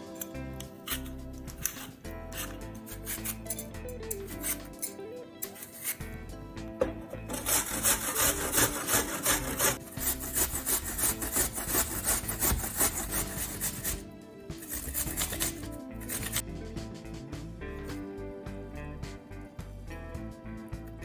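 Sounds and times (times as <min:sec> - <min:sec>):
apple being peeled: 0:00.0 - 0:16.5
apple rasping on metal grater: 0:00.2 - 0:04.7, 0:05.4 - 0:06.0, 0:07.2 - 0:14.0, 0:14.6 - 0:16.4.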